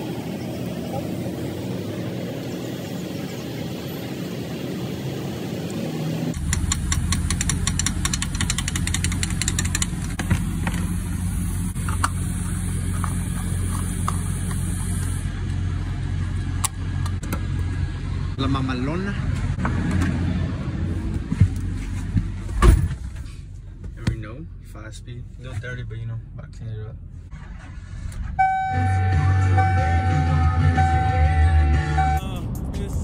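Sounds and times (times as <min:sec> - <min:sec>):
rapid clicks: 0:06.4 - 0:10.2
fuel pump humming: 0:06.4 - 0:15.6.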